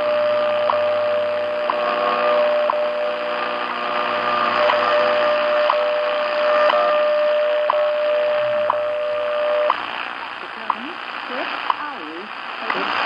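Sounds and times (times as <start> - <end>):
steady radio tone: 0.0 - 13.0
shortwave hiss: 6.5 - 13.0.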